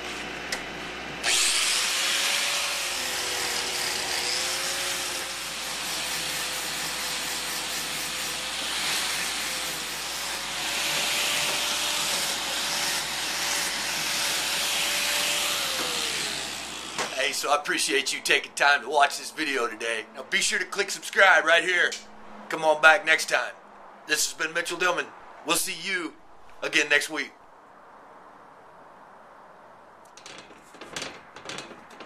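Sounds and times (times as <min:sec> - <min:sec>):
angle grinder grinding metal: 0:00.0 - 0:17.3.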